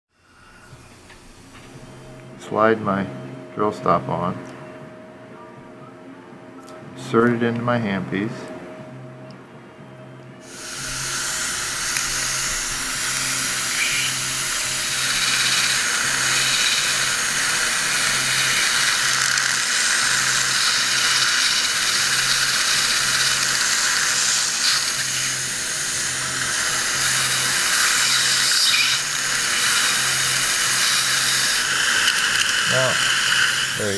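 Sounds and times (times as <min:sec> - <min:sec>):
dental drill running: 0:00.2 - 0:02.2, 0:10.4 - 0:33.9
surgical suction hissing: 0:10.4 - 0:33.9.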